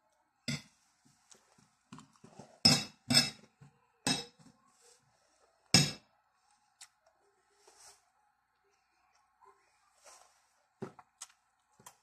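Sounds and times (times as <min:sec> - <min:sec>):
cutlery clinking on ceramic plate: 0:00.5 - 0:00.7, 0:02.6 - 0:03.5.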